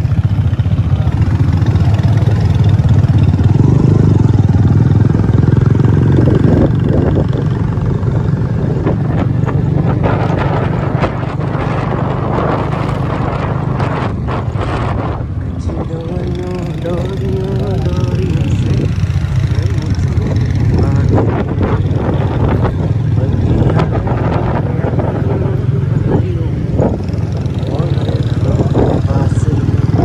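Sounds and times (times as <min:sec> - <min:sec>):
motorcycle engine drone: 0:00.0 - 0:30.0
road and wind noise: 0:00.0 - 0:30.0.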